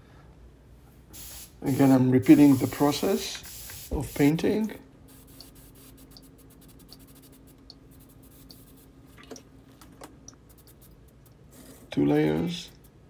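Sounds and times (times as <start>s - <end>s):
faint steady hum: 0.0s - 13.0s
small ticks and scratches: 5.2s - 11.9s.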